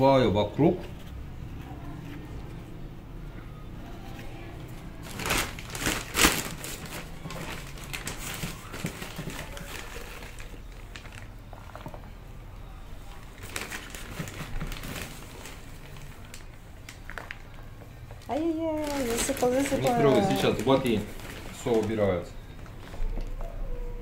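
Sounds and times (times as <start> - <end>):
plastic bag rustling: 3.9 - 12.2, 13.0 - 23.4.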